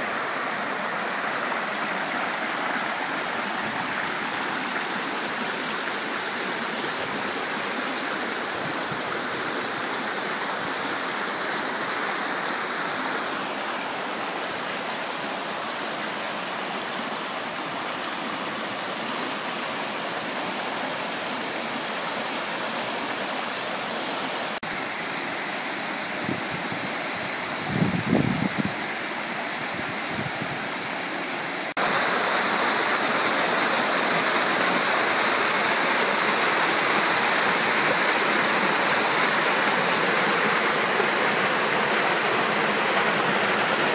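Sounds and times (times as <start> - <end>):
stream rushing over rocks: 0.0 - 43.9.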